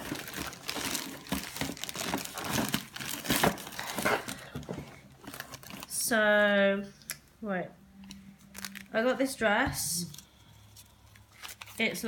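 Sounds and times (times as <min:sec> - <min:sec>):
packaging rustling: 0:00.0 - 0:06.0, 0:08.5 - 0:09.0, 0:10.1 - 0:12.0.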